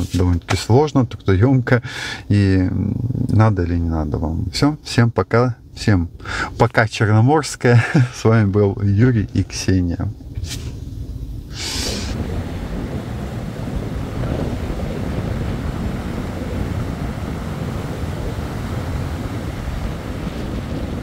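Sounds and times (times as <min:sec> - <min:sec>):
wind buffeting microphone: 0:05.6 - 0:21.0
short hiss: 0:10.4 - 0:12.2
surf breaking on beach: 0:11.5 - 0:21.0.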